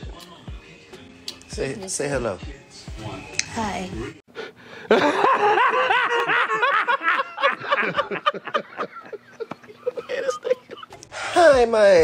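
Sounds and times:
hearty laughter: 4.8s - 11.0s.

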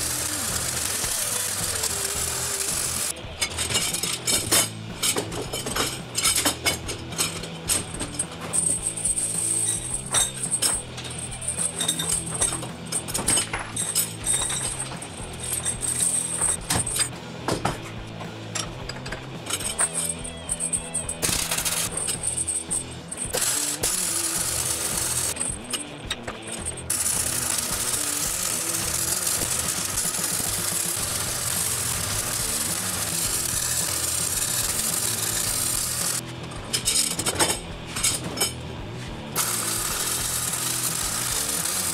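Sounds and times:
welding arc crackling: 0.0s - 3.2s, 21.1s - 36.3s, 39.4s - 41.9s
steel chain rattling on metal: 0.0s - 17.2s, 18.5s - 38.6s
background music: 0.0s - 41.9s.

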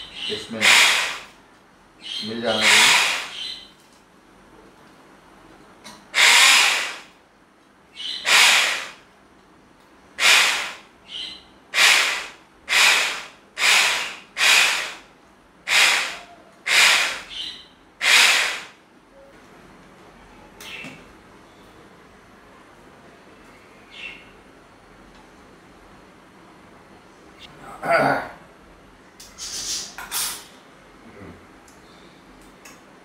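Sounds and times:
electric hand blender whirring: 0.6s - 1.2s, 2.6s - 3.3s, 6.2s - 7.1s, 8.3s - 9.0s, 10.2s - 10.8s, 11.8s - 15.0s, 15.7s - 17.2s, 18.0s - 18.7s.

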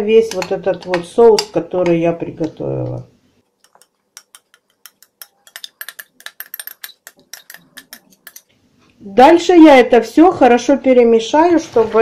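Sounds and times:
spoon scraping a glass bowl: 3.6s - 8.5s.

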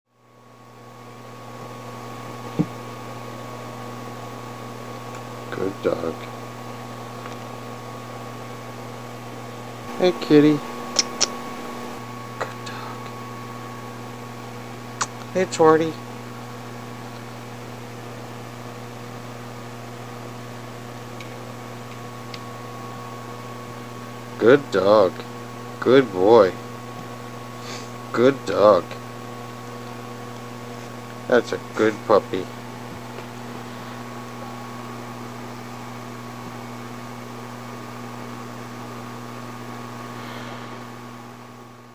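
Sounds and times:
steady electrical hum: 0.1s - 41.9s
constant hiss: 9.8s - 13.2s.

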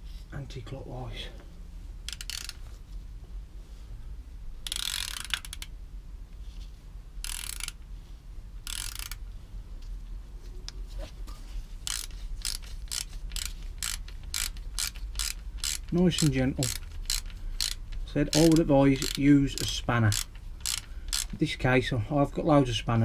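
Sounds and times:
socket ratchet clicking: 2.0s - 2.7s, 4.6s - 5.8s, 7.2s - 7.9s, 8.6s - 9.2s, 11.8s - 21.5s.

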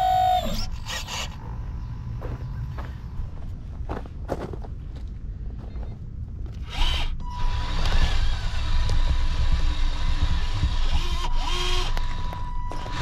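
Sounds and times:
motor whines rising and falling: 0.0s - 1.4s, 6.6s - 13.0s
low engine-like rumble: 0.1s - 13.0s.

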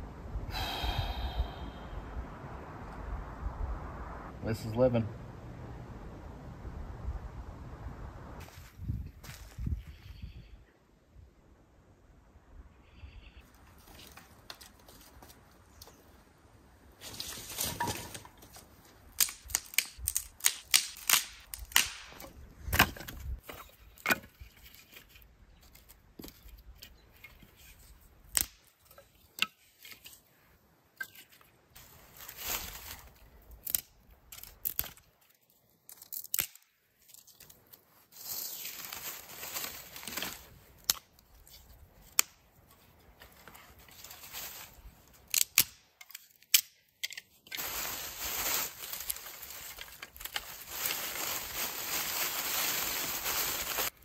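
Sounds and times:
dry leaves rustling: 16.9s - 22.2s, 31.8s - 36.4s, 37.0s - 45.4s, 47.4s - 54.0s
dry sticks snapping: 19.1s - 23.0s, 28.2s - 28.7s, 33.5s - 35.1s, 35.8s - 37.8s, 40.0s - 42.4s, 45.1s - 47.6s, 48.7s - 51.0s.

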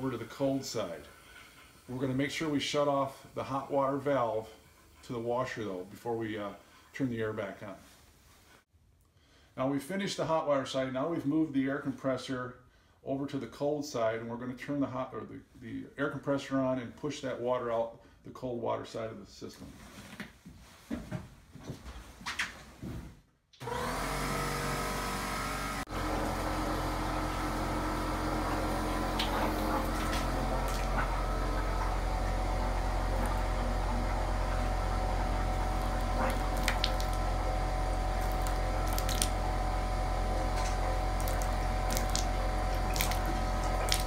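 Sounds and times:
electric air compressor running: 23.6s - 44.0s.

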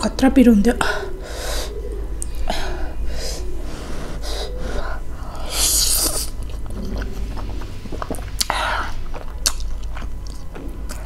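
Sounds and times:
breathy hisses: 0.8s - 9.2s
mouth noises while eating: 0.8s - 11.0s.

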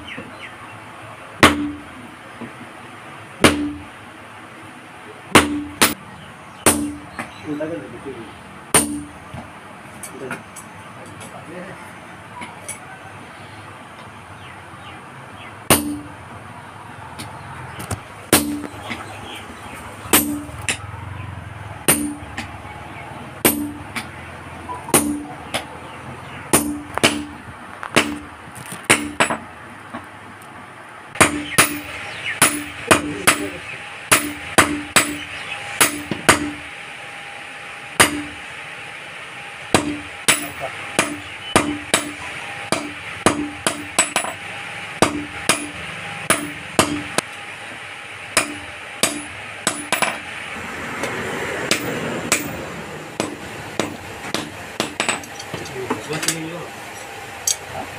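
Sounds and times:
hammer clanging on anvil: 1.4s - 1.8s, 3.4s - 3.9s, 8.7s - 9.2s, 15.7s - 16.1s, 18.3s - 18.7s, 20.1s - 20.8s, 21.9s - 22.5s, 23.4s - 24.1s, 24.9s - 25.7s, 26.5s - 27.4s, 31.2s - 36.6s, 39.8s - 44.4s, 45.0s - 47.2s, 48.4s - 50.2s, 51.7s - 52.6s, 53.2s - 56.5s.

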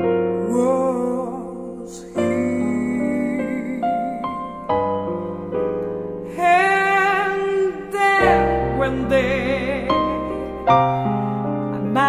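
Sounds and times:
piano chords: 0.0s - 12.0s
woman singing with vibrato: 6.3s - 10.7s.

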